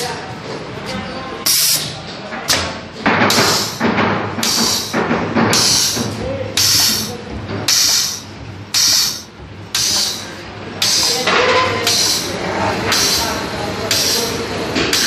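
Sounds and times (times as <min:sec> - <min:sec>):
air exhaust hiss: 0:01.4 - 0:02.0, 0:03.3 - 0:15.0
pneumatic machine stroke: 0:01.5 - 0:01.9, 0:03.3 - 0:03.8, 0:04.4 - 0:11.2, 0:11.8 - 0:15.0.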